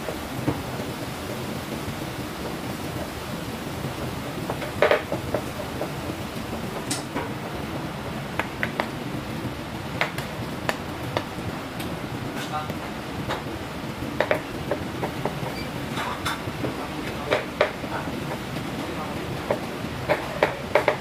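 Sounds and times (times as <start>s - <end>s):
pots and dishes clattering: 14.2s - 18.5s.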